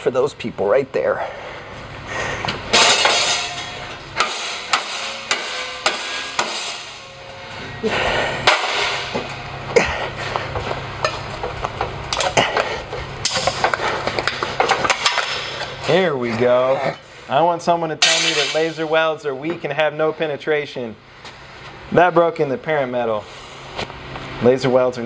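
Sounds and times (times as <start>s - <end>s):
metal clanks knocks and scrapes: 2.5s - 7.7s, 10.5s - 17.0s.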